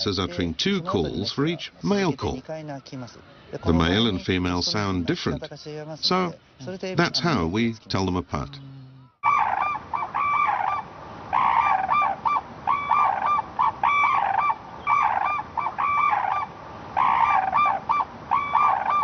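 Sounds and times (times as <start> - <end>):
cranes calling in duet: 8.6 - 19.0.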